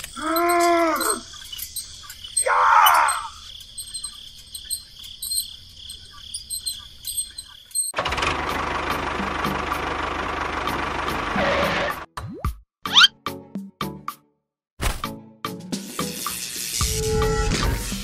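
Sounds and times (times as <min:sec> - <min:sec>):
crickets chirping: 0:00.0 - 0:08.0.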